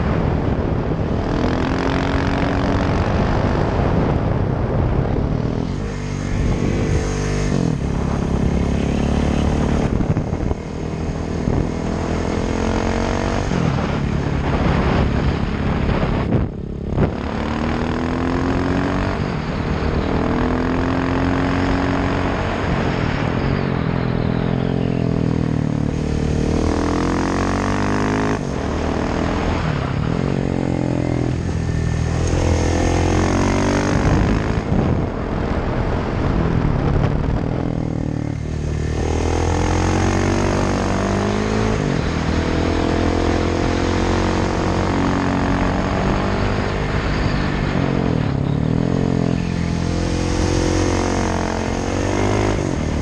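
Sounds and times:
motorcycle engine revving: 0.0 - 53.0.

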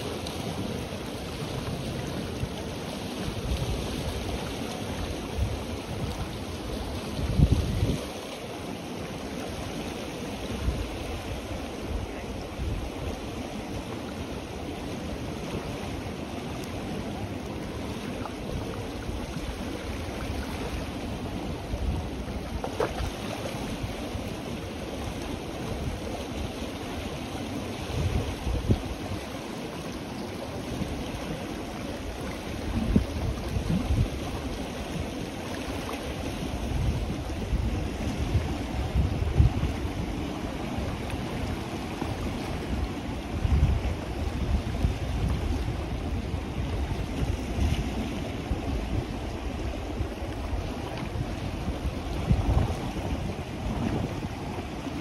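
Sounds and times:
wind buffeting microphone: 0.0 - 8.2, 30.8 - 35.3, 36.1 - 55.0
river rushing: 0.0 - 55.0.

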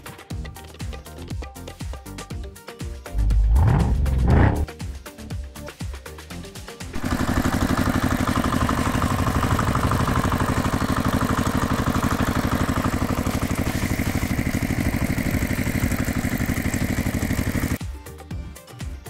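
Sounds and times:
engine idling: 3.1 - 4.7, 7.0 - 17.8.

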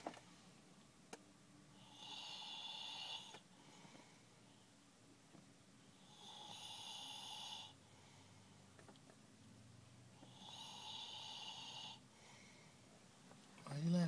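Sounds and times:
man snoring: 1.7 - 3.4, 6.0 - 7.8, 10.2 - 12.0.

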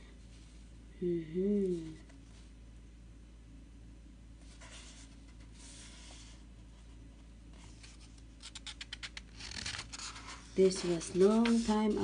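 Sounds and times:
paper pages rustling: 7.5 - 12.0
dry paper crackles: 7.6 - 12.0.

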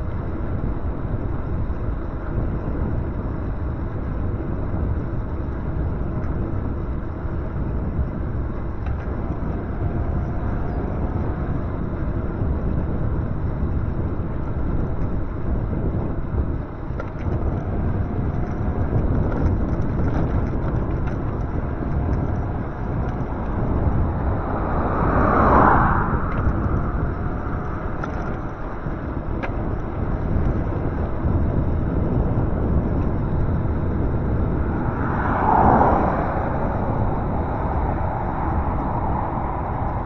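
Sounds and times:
road noise: 0.0 - 40.0
wind: 0.0 - 40.0
cars passing: 8.2 - 13.4, 16.8 - 40.0.

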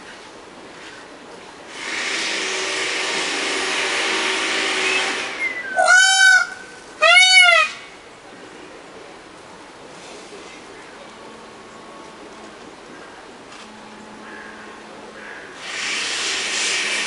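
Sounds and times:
steady rushing noise: 0.0 - 7.0, 7.7 - 17.0
peacock calling: 5.0 - 7.9.

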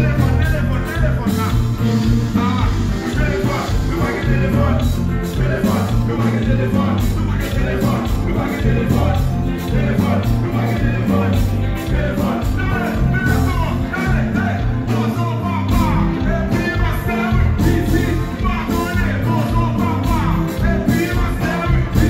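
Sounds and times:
live band playing: 0.0 - 22.0
person singing: 0.0 - 22.0
regular drum beat: 0.0 - 22.0
steady bass line: 0.0 - 22.0.

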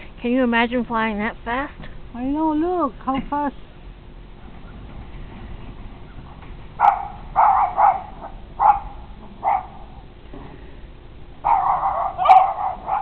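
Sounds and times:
bark-like animal calls: 6.8 - 10.0, 11.4 - 13.0.

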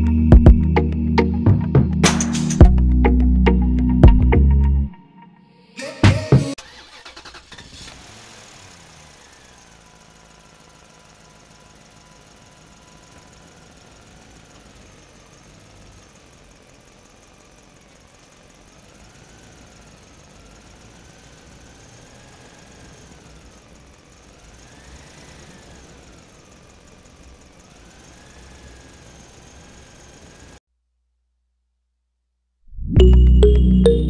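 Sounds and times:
toy electric motor whining: 17.6 - 30.6.

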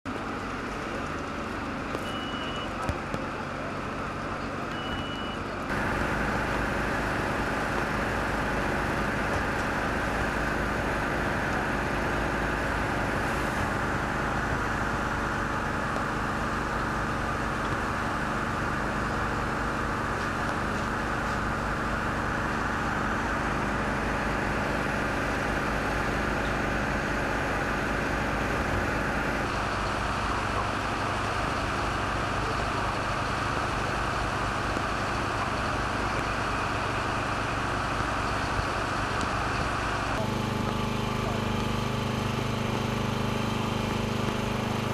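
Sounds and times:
diesel engines running: 0.0 - 44.9.

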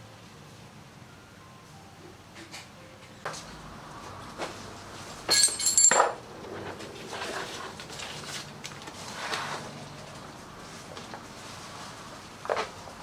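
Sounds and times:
metal tools clattering: 5.3 - 6.2.

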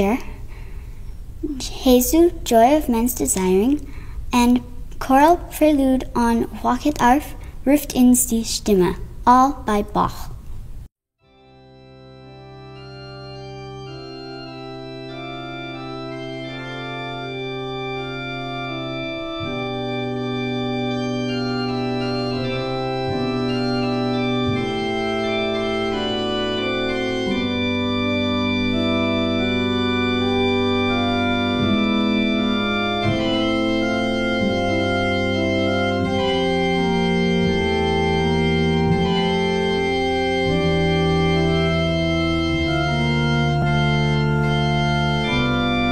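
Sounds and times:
organ chords: 0.0 - 9.2, 11.2 - 45.9
organ pedal bass notes: 11.3 - 45.9.

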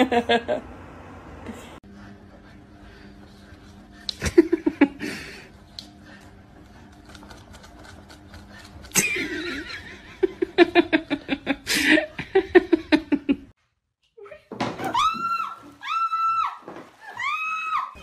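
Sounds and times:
person laughing: 4.1 - 5.5, 8.9 - 13.5.

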